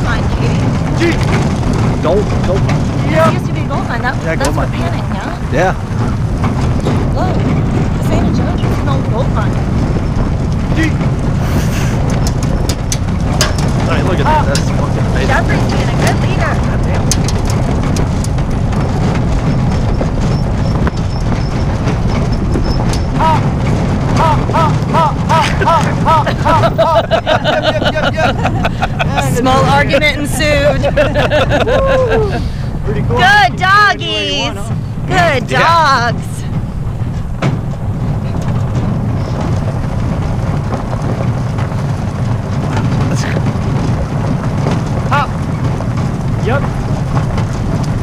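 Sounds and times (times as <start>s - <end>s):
cart wheels rumbling on gravel: 0.0s - 48.0s
wind on microphone: 0.0s - 48.0s
short rising and falling squeaks: 19.4s - 23.6s.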